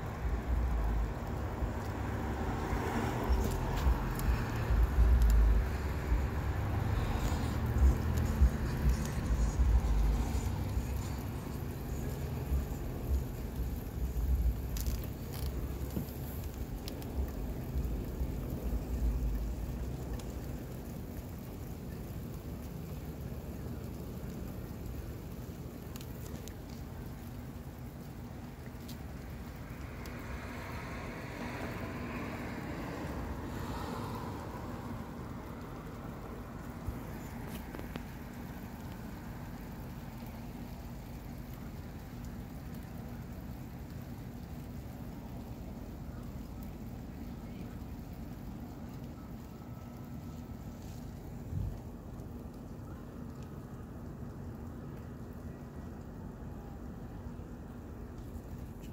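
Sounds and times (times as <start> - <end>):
rain shower hissing: 0.0 - 58.9
low rumble: 0.1 - 21.4.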